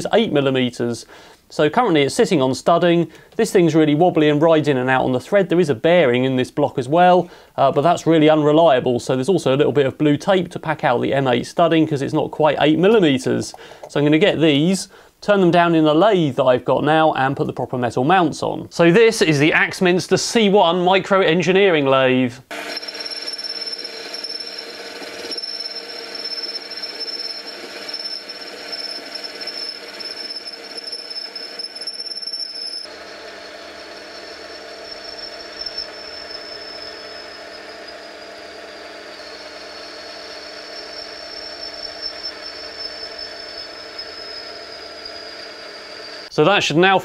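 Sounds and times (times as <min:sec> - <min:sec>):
lathe running with high whine: 0:22.5 - 0:46.4.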